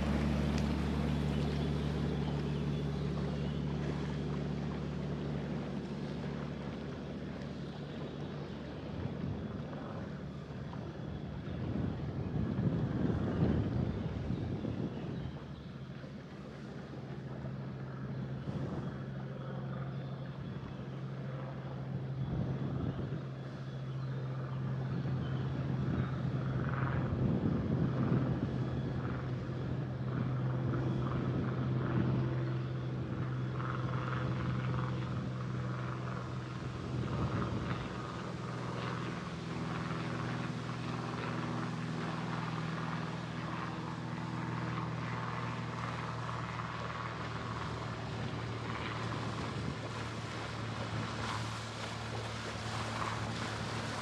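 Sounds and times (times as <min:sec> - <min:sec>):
rushing water noise: 0:00.0 - 0:02.4, 0:48.4 - 0:54.0
boat engine humming: 0:00.0 - 0:54.0.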